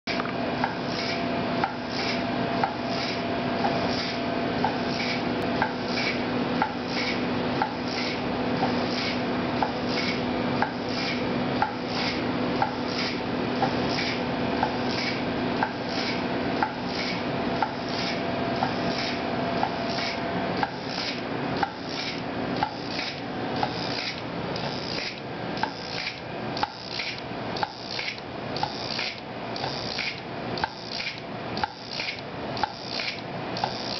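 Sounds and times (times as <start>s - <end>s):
pneumatic actuator clicking: 0.1s - 33.9s
steady hum: 0.1s - 33.9s.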